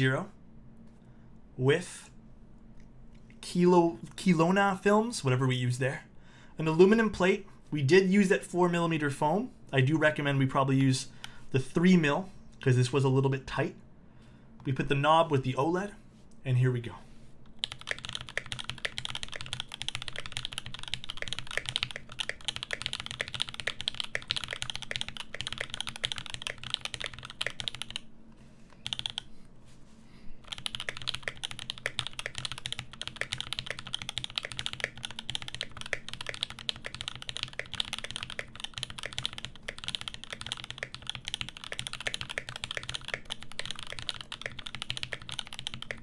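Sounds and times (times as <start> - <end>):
mechanical keyboard typing: 17.6 - 28.0, 28.8 - 29.3, 30.4 - 46.0.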